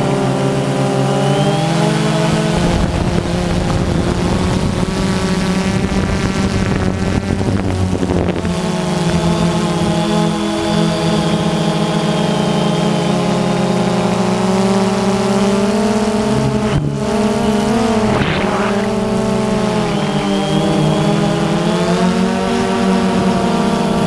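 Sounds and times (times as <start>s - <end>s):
drone propellers humming: 0.0s - 24.0s
short rush of noise: 17.8s - 20.6s.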